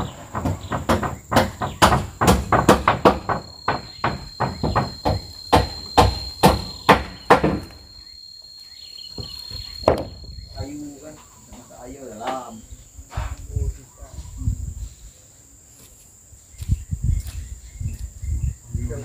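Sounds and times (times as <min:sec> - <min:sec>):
hammer driving nails into wood: 0:00.0 - 0:07.7
high insect trill: 0:00.0 - 0:19.0.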